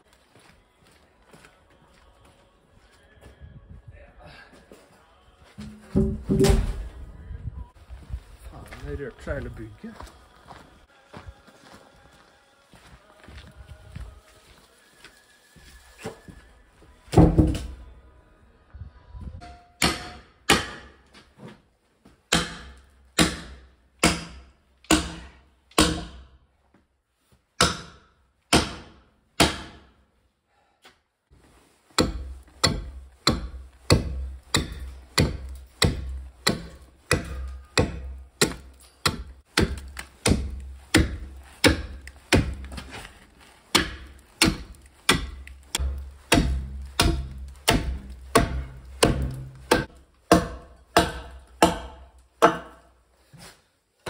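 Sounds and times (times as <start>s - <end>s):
axe chopping log: 5.6s - 6.8s, 17.1s - 17.8s, 19.8s - 21.0s, 22.3s - 26.3s, 27.6s - 29.9s, 32.0s - 43.1s, 43.7s - 52.8s.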